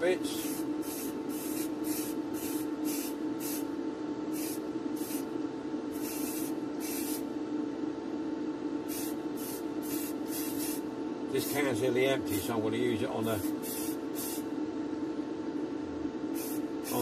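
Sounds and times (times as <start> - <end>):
steady motor hum: 0.0 - 17.0
spray can hissing bursts: 0.4 - 3.6, 4.3 - 5.3, 6.0 - 7.2, 8.9 - 10.8, 13.6 - 14.4, 16.4 - 17.0.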